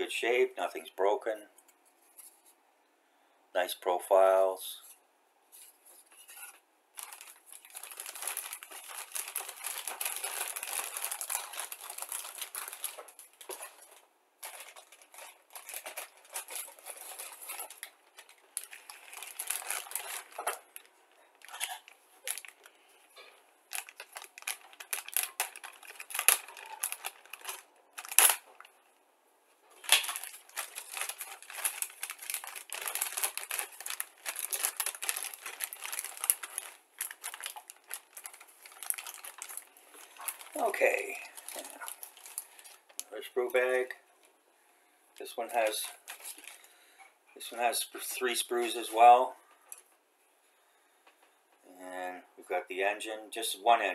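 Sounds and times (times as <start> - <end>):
plastic bag crinkling: 6.0 - 28.8, 29.7 - 43.9, 45.2 - 46.8.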